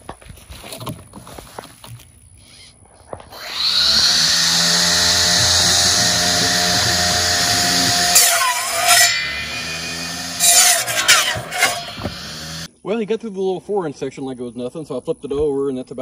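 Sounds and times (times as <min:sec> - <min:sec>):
circular saw cutting wood: 0:03.3 - 0:12.7.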